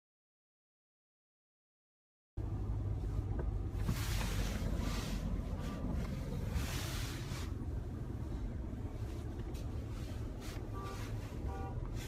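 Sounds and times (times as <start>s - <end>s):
car engine and tyres rumbling: 2.4s - 12.0s.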